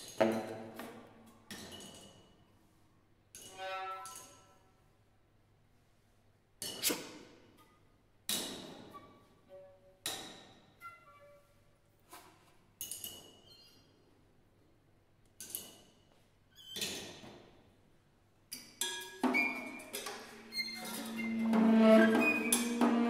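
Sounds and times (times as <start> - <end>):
faint pitched notes: 20.7 - 23.0.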